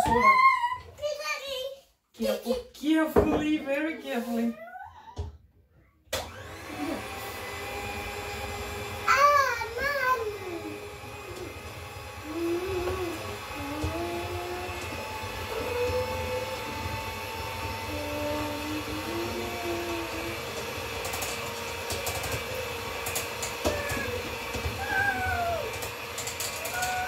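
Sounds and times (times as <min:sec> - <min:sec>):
child's high vocal sounds: 0:00.0 - 0:01.5, 0:04.5 - 0:05.2, 0:09.1 - 0:10.8, 0:24.8 - 0:25.7
electric hand mixer running: 0:06.2 - 0:27.0.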